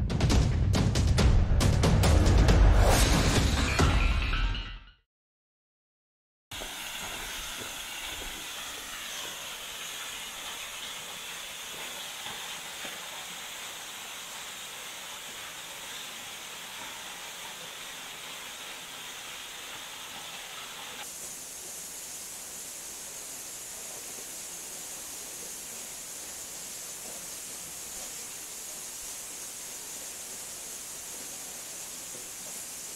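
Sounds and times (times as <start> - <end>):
waterfall rushing: 6.6 - 32.9.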